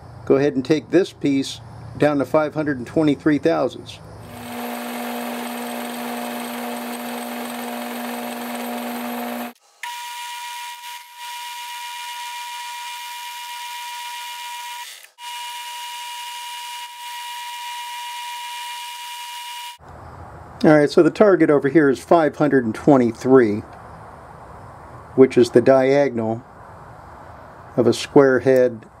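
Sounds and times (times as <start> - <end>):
metal lathe whining: 4.3 - 10.0.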